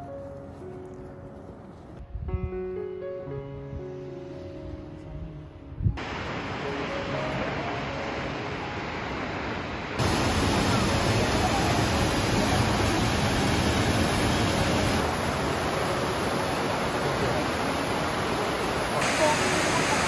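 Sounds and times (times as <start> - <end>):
fast river rapids: 6.0 - 20.0
waterfall rushing: 6.0 - 20.0.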